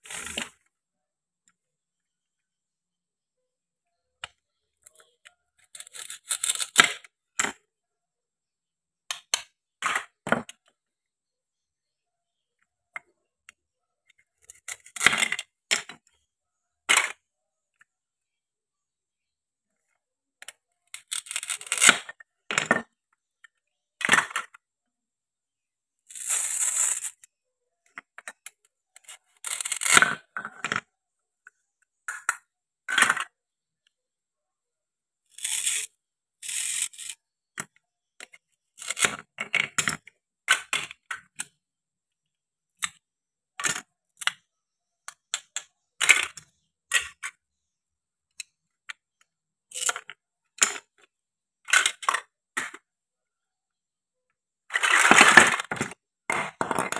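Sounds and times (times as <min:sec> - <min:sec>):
hook-and-loop fastener ripping apart: 0:05.8 - 0:07.0
plastic pieces knocking on wooden board: 0:54.7 - 0:56.9.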